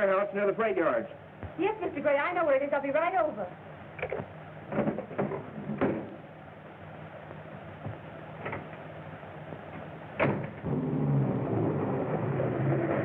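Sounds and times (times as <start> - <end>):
door slamming shut: 10.2 - 12.4.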